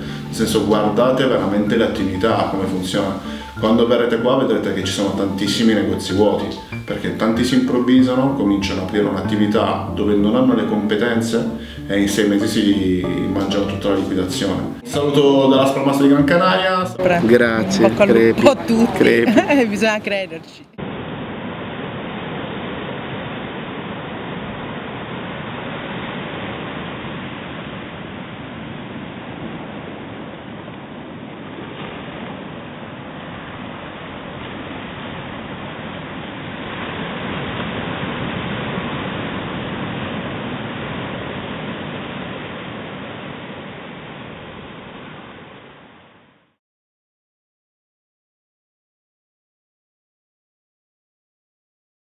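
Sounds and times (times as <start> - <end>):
waves breaking on beach: 20.8 - 45.6.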